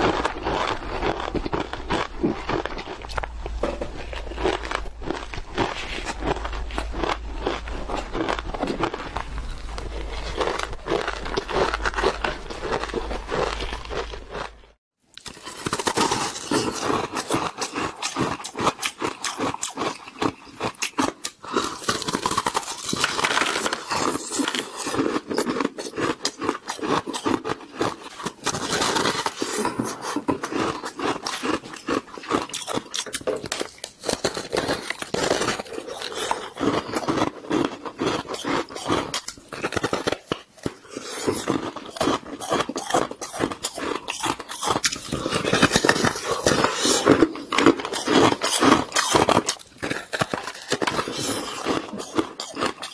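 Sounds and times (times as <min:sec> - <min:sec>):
crunching of chewed ice: 0:00.0 - 0:52.9
low steady hum: 0:02.2 - 0:14.7.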